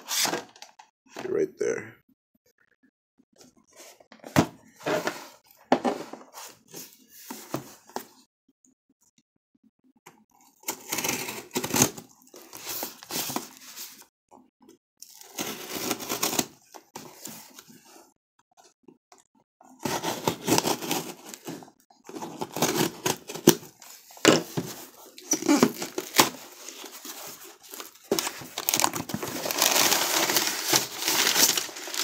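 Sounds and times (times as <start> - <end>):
cardboard box being handled: 24.3 - 32.0.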